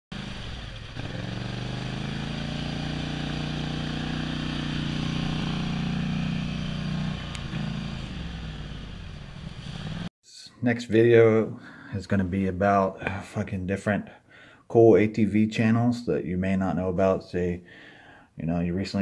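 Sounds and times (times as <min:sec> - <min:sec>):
atv engine revving: 0:00.1 - 0:10.1.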